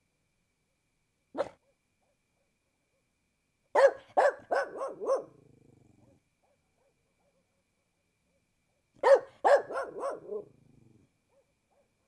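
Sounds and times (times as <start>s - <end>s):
dog barking: 1.4s - 1.8s, 3.7s - 5.4s, 6.0s - 7.6s, 9.0s - 10.6s, 11.3s - 12.0s.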